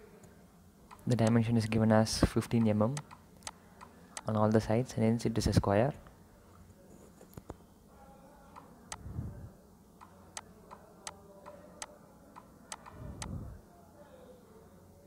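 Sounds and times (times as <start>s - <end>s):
computer mouse clicking: 2.6s - 4.3s, 10.0s - 13.4s.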